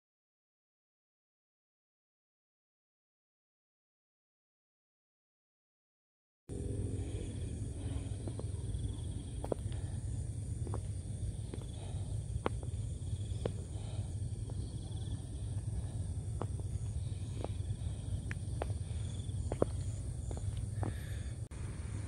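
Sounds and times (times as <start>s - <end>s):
faint high insect buzz: 6.5s - 22.0s
low rumble: 6.5s - 22.0s.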